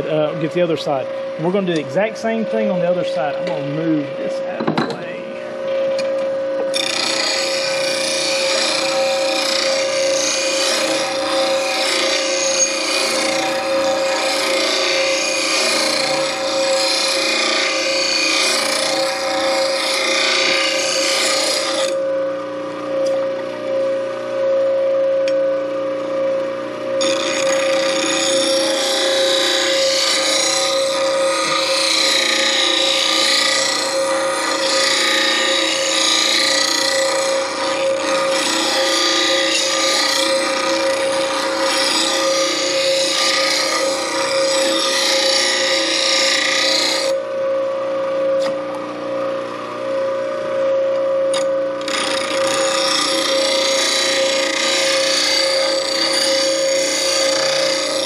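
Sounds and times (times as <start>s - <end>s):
bench grinder humming: 0.0s - 58.0s
harsh grinding of metal: 6.7s - 22.0s, 27.0s - 47.2s, 51.3s - 58.0s.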